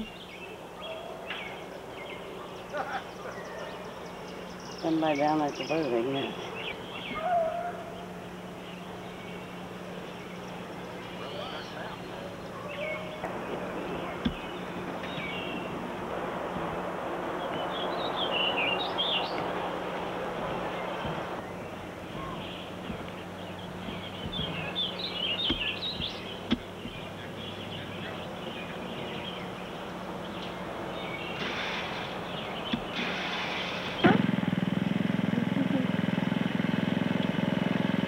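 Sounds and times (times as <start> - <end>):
birds chirping: 0.0 - 38.0
low even hum: 0.0 - 38.0
background hiss: 7.9 - 34.1.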